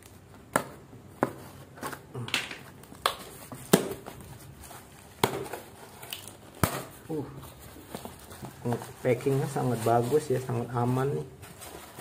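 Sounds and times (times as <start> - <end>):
cardboard snapping and knocking: 0.5 - 4.2, 5.2 - 5.6, 6.2 - 7.0.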